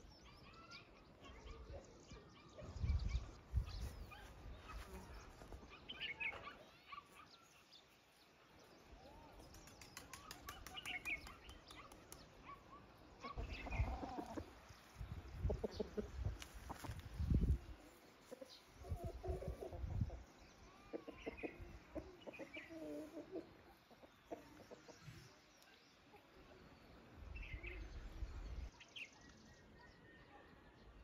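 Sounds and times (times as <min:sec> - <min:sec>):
small birds chirping: 0:00.0 - 0:31.0
chickens clucking: 0:13.2 - 0:25.4.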